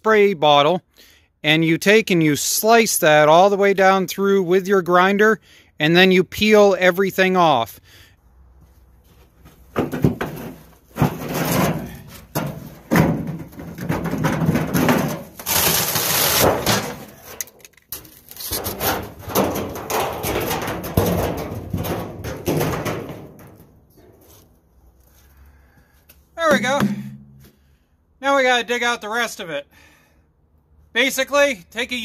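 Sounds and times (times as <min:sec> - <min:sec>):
sheet metal scraping: 0:09.8 - 0:24.5.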